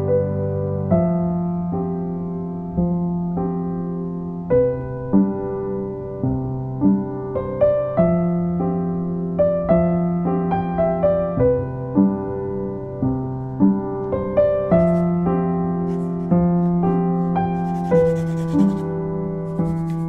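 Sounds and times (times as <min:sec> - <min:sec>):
slow piano melody: 0:00.0 - 0:20.0.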